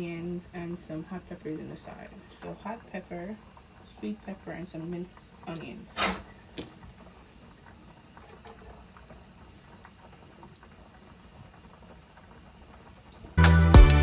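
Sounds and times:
butter bubbling in a frying pan: 0.0 - 13.4
pot of potatoes boiling: 0.0 - 14.0
loud music with a beat: 13.4 - 14.0.

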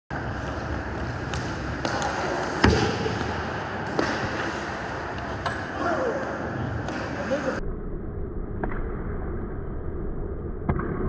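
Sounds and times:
skates scraping ice: 0.1 - 7.6
stick hitting puck: 0.4 - 5.7.

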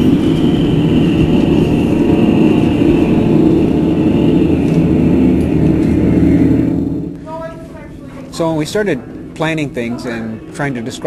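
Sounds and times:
low rumbling drone: 0.0 - 11.0.

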